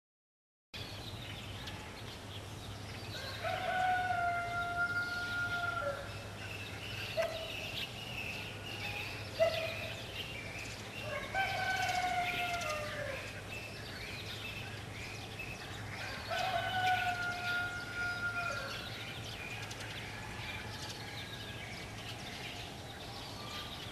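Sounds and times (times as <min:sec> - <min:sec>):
rooster crowing: 0:03.1 - 0:06.1, 0:11.1 - 0:13.3, 0:16.0 - 0:18.8.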